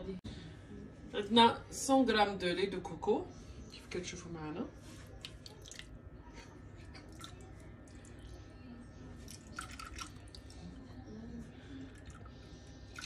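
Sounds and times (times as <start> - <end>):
liquid dripping and splashing: 5.2 - 6.0, 9.2 - 10.7.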